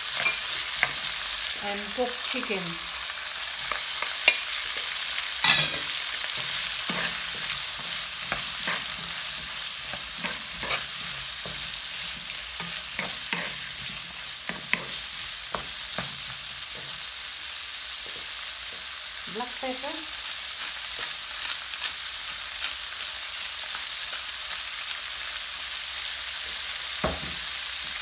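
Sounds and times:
food sizzling in a frying pan: 0:00.0 - 0:28.0
wooden spoon scraping a pan: 0:03.6 - 0:17.0.

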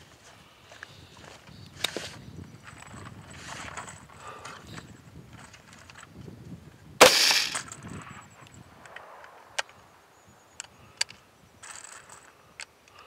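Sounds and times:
rifle shot report: 0:07.0 - 0:07.7.

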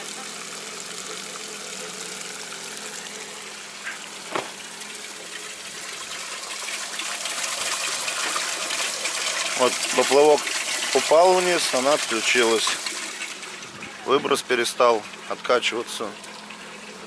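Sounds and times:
water gushing from a pipe: 0:00.0 - 0:17.0
short knock: 0:04.3 - 0:04.6.

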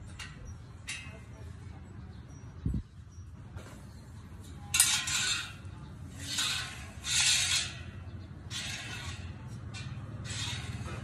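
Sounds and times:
metal rod scraping wheel rim: 0:04.4 - 0:11.0.

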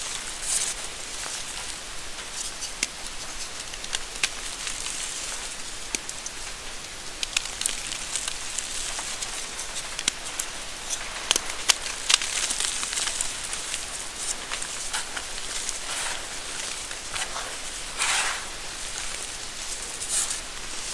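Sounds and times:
chalk crumbling hiss: 0:00.0 - 0:20.9
chalk chunks snapping: 0:00.5 - 0:20.5.

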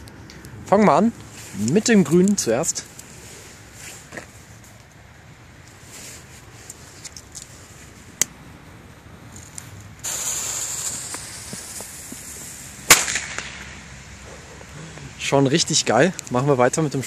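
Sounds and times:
firecracker fuse hissing: 0:09.3 - 0:13.8
firecracker bang: 0:10.0 - 0:13.9.

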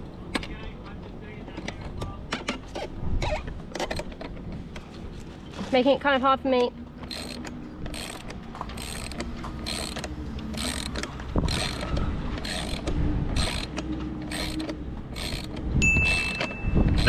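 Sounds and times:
ratchet wrench clicking: 0:07.0 - 0:17.0.

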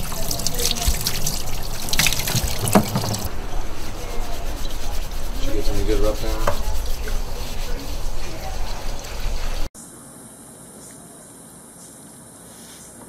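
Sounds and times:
hands rubbing wet fur: 0:00.0 - 0:09.7
hose water hissing: 0:00.0 - 0:09.7.

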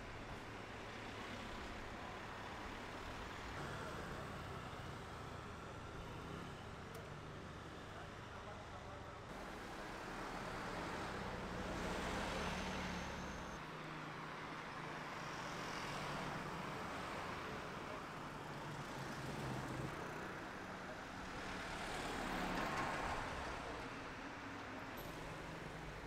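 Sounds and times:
cars driving past: 0:09.3 - 0:17.6.

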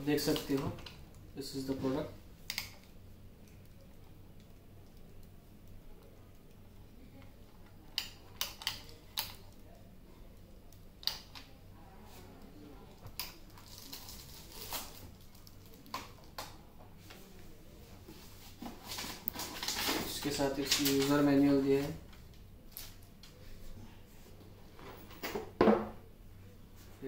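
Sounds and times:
packaging rustling: 0:13.5 - 0:15.9, 0:18.5 - 0:21.2
plastic parts knocking on table: 0:25.3 - 0:26.0.

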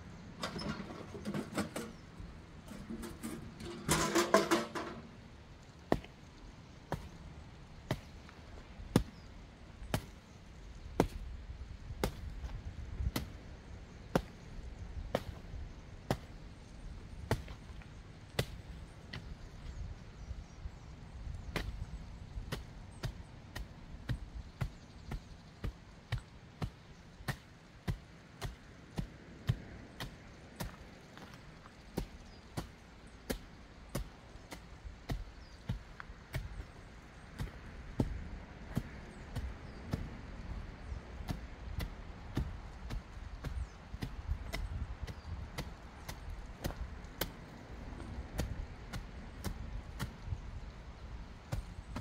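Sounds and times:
tool striking and crushing ash: 0:00.4 - 0:05.2, 0:15.1 - 0:15.4, 0:22.5 - 0:50.3, 0:51.5 - 0:52.0.

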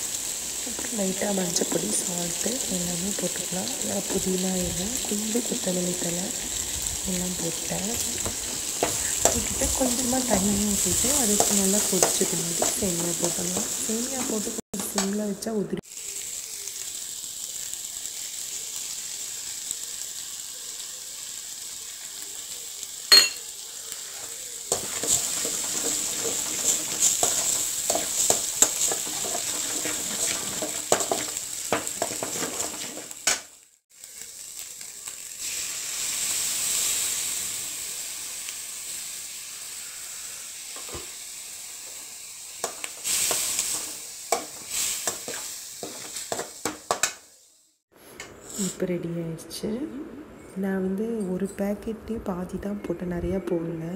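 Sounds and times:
vegetables sizzling in hot oil: 0:00.0 - 0:47.8
spoon scraping a pan: 0:07.9 - 0:14.4, 0:23.1 - 0:33.4, 0:42.6 - 0:47.2.

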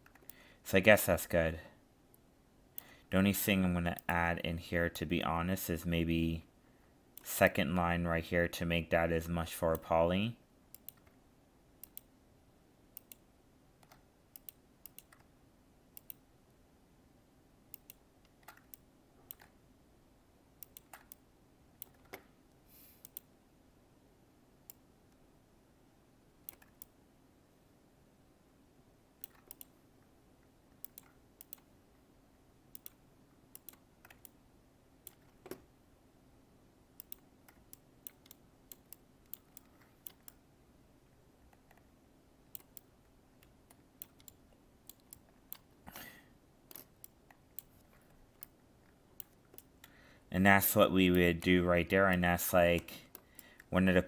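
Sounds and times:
faint low hum: 0:00.0 - 0:54.0
mouse and keyboard clicks: 0:10.7 - 0:11.2, 0:17.7 - 0:19.6, 0:20.6 - 0:21.2, 0:26.5 - 0:26.9, 0:29.2 - 0:29.8, 0:37.0 - 0:40.4, 0:42.5 - 0:45.7, 0:49.2 - 0:49.9.

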